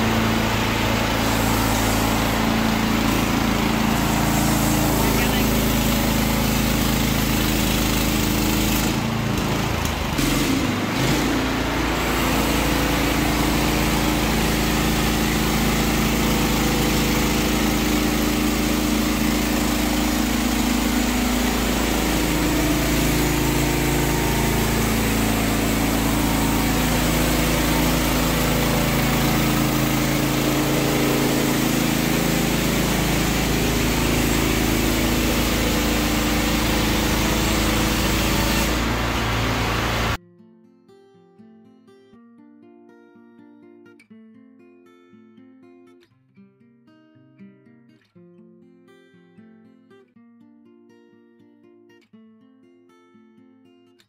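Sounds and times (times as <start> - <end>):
gasoline engine running: 0.0 - 40.2.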